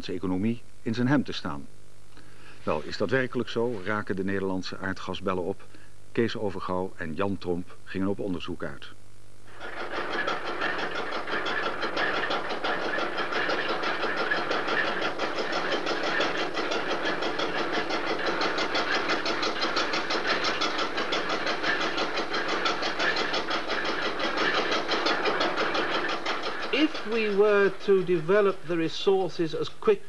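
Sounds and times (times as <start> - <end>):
drilling rig machinery clattering: 9.5 - 30.0.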